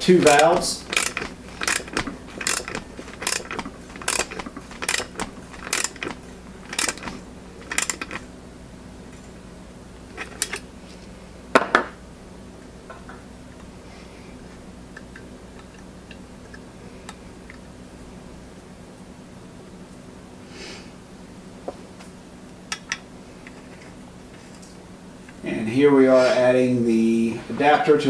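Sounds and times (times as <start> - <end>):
ratchet handle clicking: 0.2 - 8.3, 10.2 - 10.6.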